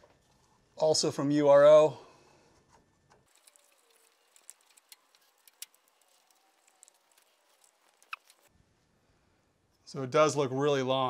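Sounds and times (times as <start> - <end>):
faint clicks and rustles of hands: 2.4 - 8.9.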